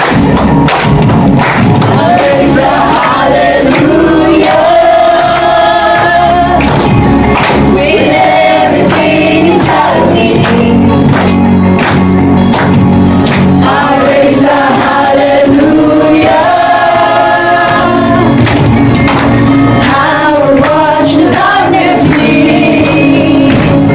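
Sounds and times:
accompanying music with steady beat: 0.0 - 23.9
group singing worship song: 1.3 - 23.9.

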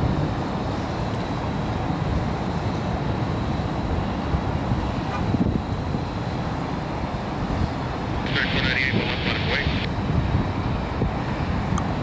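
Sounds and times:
jet engines rumbling: 0.0 - 12.0
wind on microphone: 3.6 - 12.0
faint high whine: 7.6 - 10.0.

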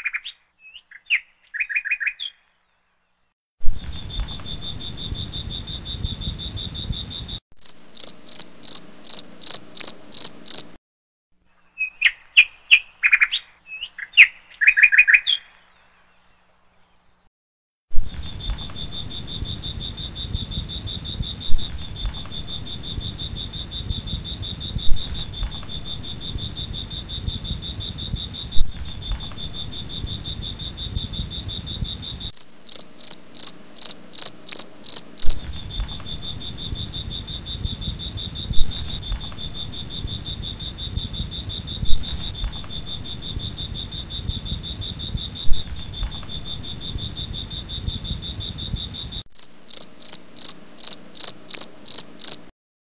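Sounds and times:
pulsing insect call: 4.1 - 10.8, 29.2 - 52.5
high-pitched insect drone: 7.6 - 10.7, 32.4 - 35.5, 49.4 - 52.5.

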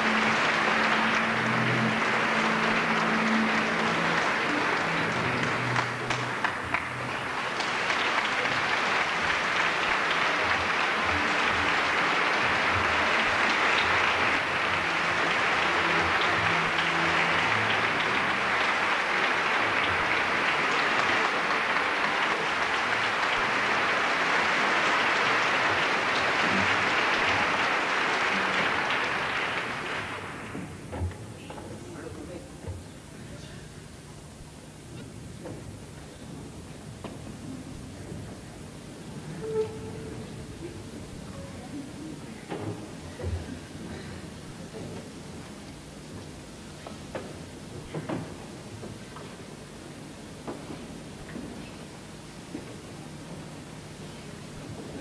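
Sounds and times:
audience applauding: 0.0 - 31.1.

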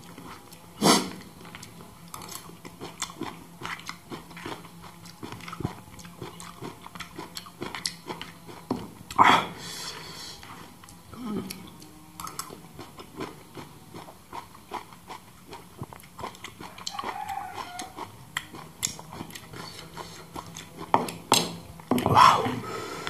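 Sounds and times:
wet chewing and lip smacks: 0.0 - 9.2, 10.8 - 22.0
person humming: 9.2 - 11.9, 22.0 - 23.0.

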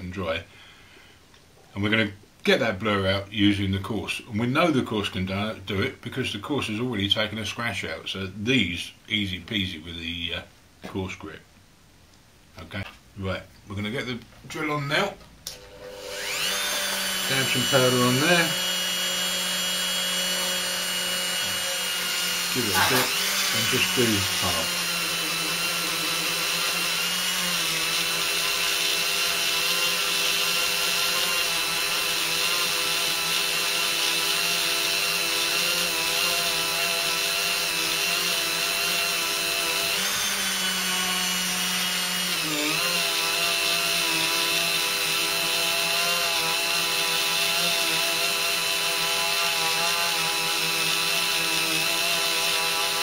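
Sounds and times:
rotary tool polishing glass: 16.0 - 29.0.

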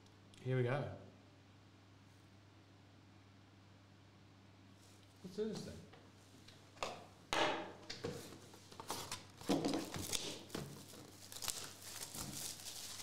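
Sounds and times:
cardboard packaging ripping: 8.8 - 13.0.

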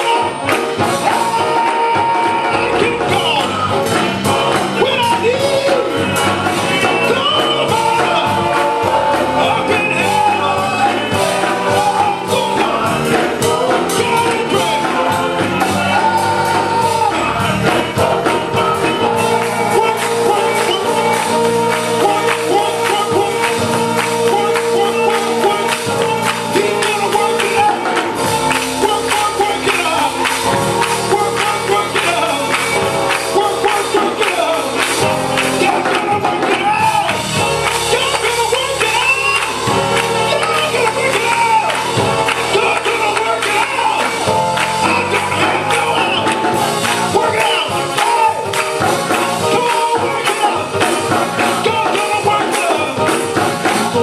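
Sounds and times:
band playing: 0.0 - 54.0
men's vocal group singing gospel: 0.0 - 54.0
hand clapping: 18.3 - 54.0.

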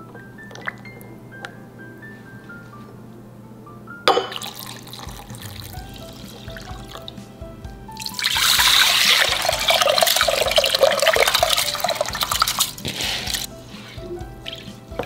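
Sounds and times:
water pouring and splashing into pot: 4.3 - 7.1, 8.0 - 13.5.

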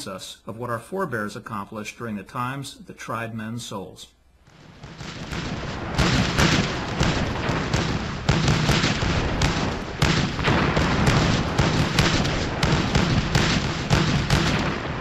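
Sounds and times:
continuous crackle: 4.4 - 15.0
bangs and booms: 4.5 - 15.0.

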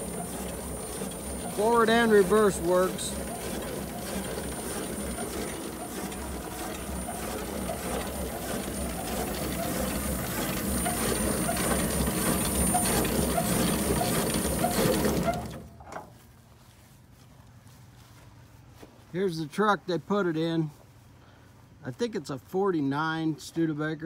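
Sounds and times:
steam engine chuffing and hissing: 0.0 - 15.7.

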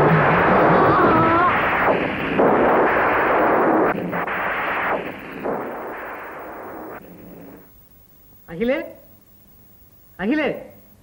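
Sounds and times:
noisy crashing blasts: 0.0 - 7.7.

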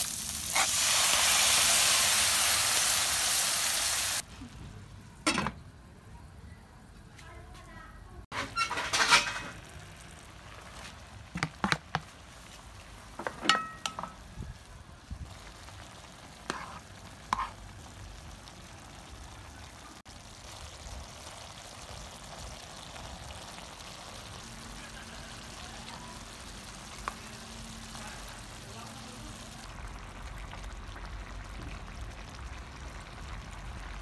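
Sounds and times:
loud sizzling burst: 0.0 - 4.2
coconut milk simmering: 9.5 - 34.0
utensil clinking against pan: 13.2 - 14.2.

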